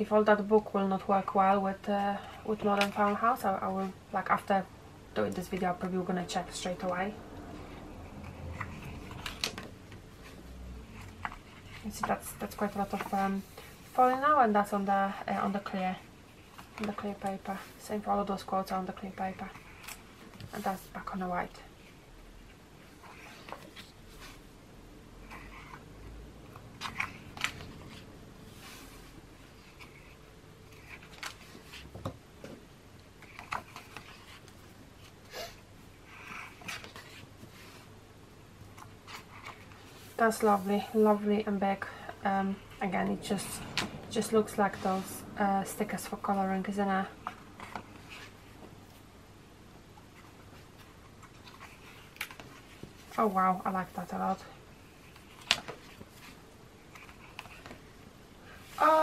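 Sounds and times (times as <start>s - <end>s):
paper pages rustling: 26.7s - 32.0s, 36.1s - 37.9s, 50.1s - 54.1s.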